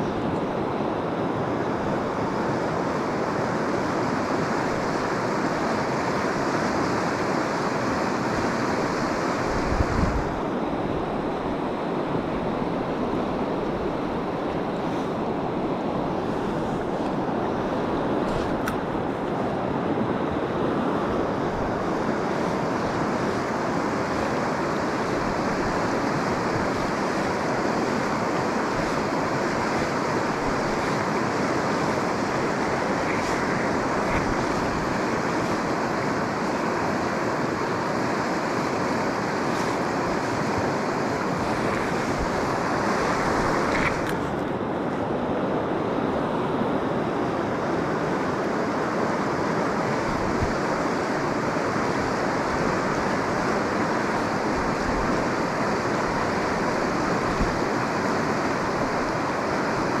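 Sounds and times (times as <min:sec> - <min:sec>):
river water rushing: 0:00.0 - 1:00.0.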